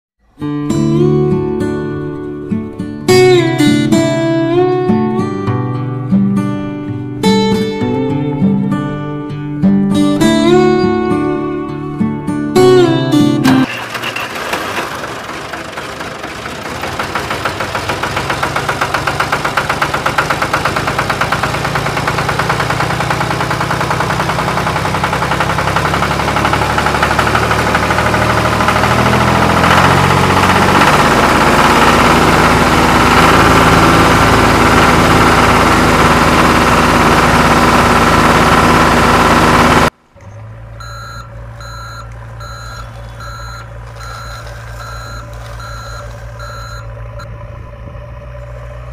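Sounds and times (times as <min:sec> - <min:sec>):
low engine hum: 0:00.2 - 0:48.9
tractor engine running: 0:00.2 - 0:48.9
reversing alarm beeping: 0:40.8 - 0:47.4.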